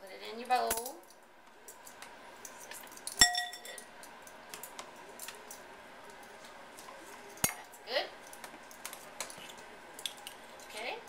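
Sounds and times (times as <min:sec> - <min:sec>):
spoon tapping and scraping: 0:01.8 - 0:03.9
spoon clinking glass bowl: 0:03.1 - 0:03.8.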